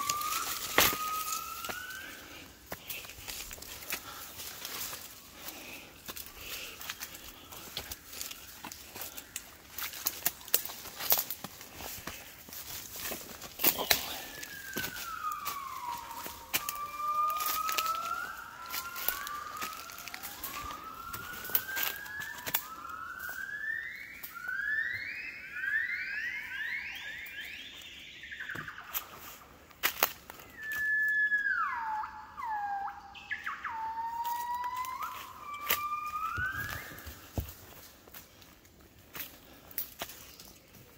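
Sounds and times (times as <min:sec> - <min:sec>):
gibbons singing whoops: 0:00.0 - 0:04.3, 0:13.6 - 0:23.6, 0:30.5 - 0:37.4
leaf litter crackling underfoot: 0:00.0 - 0:22.8.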